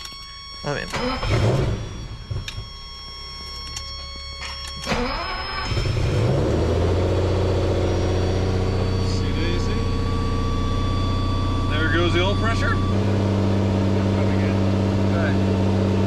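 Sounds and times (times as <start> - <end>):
high warning buzzer tone: 0.0 - 15.7
car engine cranking and idling: 0.0 - 16.0.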